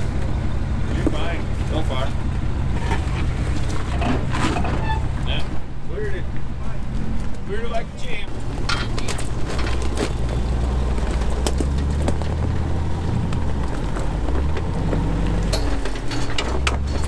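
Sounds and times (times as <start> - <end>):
rocks clicking under tyres: 6.4 - 17.0.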